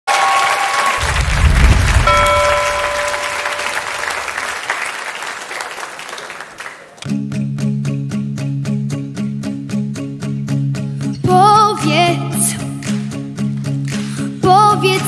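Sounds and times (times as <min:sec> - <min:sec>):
audience applauding and cheering: 0:00.0 - 0:07.1
low rumble: 0:01.0 - 0:04.2
short held tone: 0:02.0 - 0:04.4.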